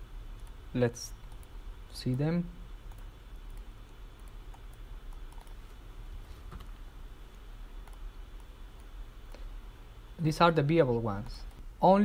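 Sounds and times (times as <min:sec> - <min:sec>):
low steady hum: 0:00.0 - 0:12.0
computer keyboard keystrokes: 0:02.9 - 0:05.6.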